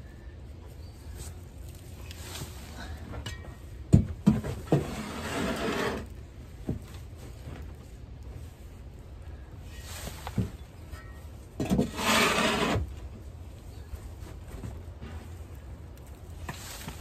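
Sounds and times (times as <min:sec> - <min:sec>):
tool scraping wooden boards: 0:04.4 - 0:06.1, 0:11.6 - 0:12.9.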